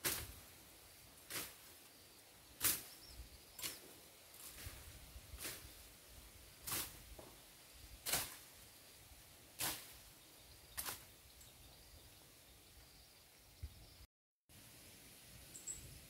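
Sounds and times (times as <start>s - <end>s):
tool swishing through grass: 0.0s - 0.6s, 1.2s - 1.9s, 2.6s - 8.6s, 9.5s - 10.1s, 10.7s - 11.1s.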